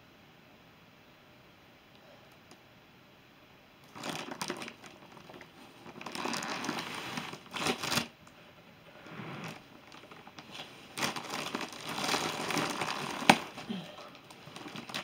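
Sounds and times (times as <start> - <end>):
plastic wrapping crinkling: 3.8 - 8.2, 8.9 - 15.0
cardboard scraping: 4.0 - 8.1, 8.9 - 15.0.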